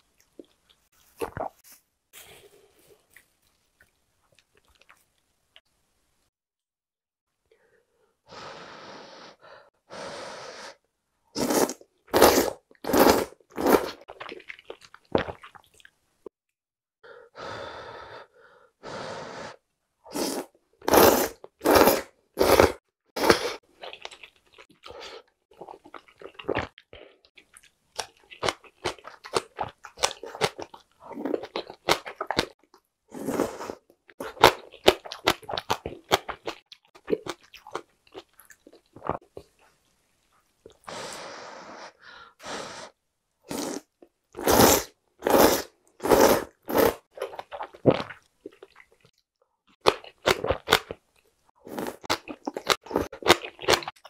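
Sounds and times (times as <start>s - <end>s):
close wet chewing: 3.0s - 5.3s, 23.8s - 32.6s, 34.1s - 40.9s, 45.3s - 49.2s, 49.8s - 54.0s
person slurping noodles: 11.4s - 14.4s, 18.9s - 23.6s, 33.1s - 34.5s, 40.7s - 48.8s, 51.6s - 54.0s.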